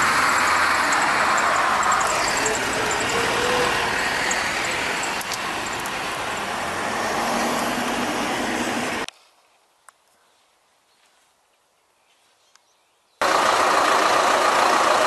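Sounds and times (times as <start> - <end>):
armoured vehicle rumbling on dirt: 0.0 - 9.0
steady engine noise: 0.0 - 9.1, 13.2 - 15.0
faint clicks: 5.0 - 6.0.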